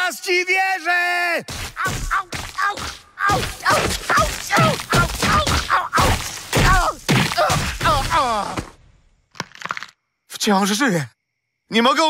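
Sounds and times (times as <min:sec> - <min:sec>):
man yelping in pain: 0:01.8 - 0:08.7
body thudding against rocks: 0:03.4 - 0:08.8.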